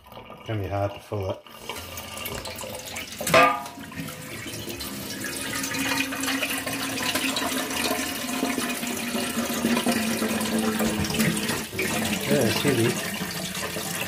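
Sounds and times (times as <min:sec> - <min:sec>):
water pouring into tank: 0:00.0 - 0:14.0
tap water splashing on metal tank: 0:02.2 - 0:04.1.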